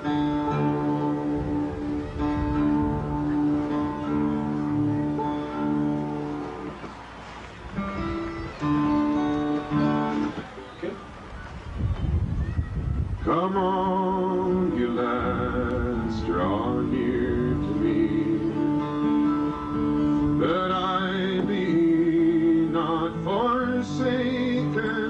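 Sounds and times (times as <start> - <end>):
acoustic guitar: 0.0 - 25.0
man singing a ballad: 13.2 - 19.4, 20.2 - 25.0.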